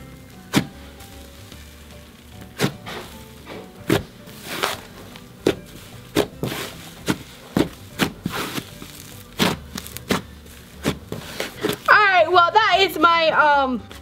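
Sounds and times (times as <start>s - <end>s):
slime crackling pops: 0.5s - 0.8s, 2.4s - 3.1s, 5.4s - 11.9s.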